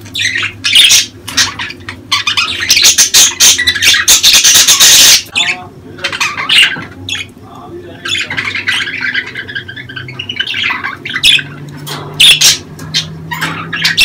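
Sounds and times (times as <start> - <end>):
budgerigars chirping and squawking: 0.0 - 14.0
bird warbled call: 0.1 - 7.3.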